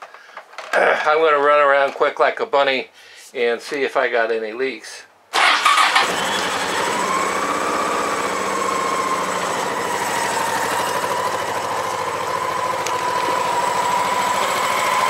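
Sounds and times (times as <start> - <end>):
motorcycle engine idling: 5.7 - 15.0.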